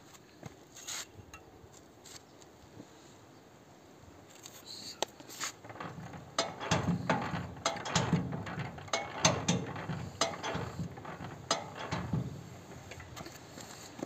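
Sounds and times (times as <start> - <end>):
metallic clanks and rattles: 5.5 - 14.0.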